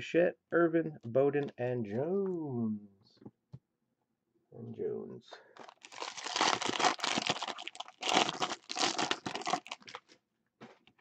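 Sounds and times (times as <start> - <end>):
foil wrapper crinkling and tearing: 5.6 - 10.2.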